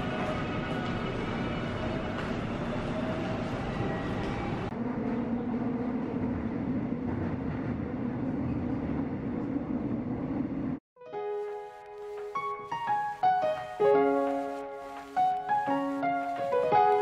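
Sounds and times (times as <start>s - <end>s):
subway train rumbling: 0.0s - 10.8s, 11.9s - 17.0s
piano music: 11.0s - 17.0s.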